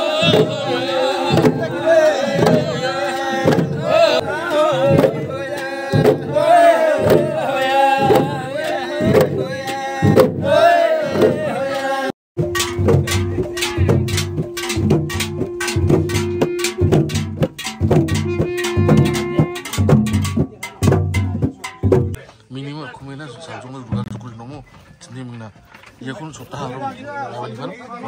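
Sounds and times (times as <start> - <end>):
men chanting and shouting: 0.0 - 16.7
regular drum beats: 0.0 - 22.2.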